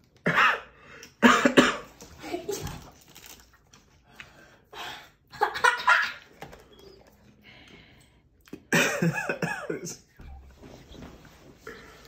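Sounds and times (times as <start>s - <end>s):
man coughing: 0.2s - 1.9s, 8.6s - 10.2s.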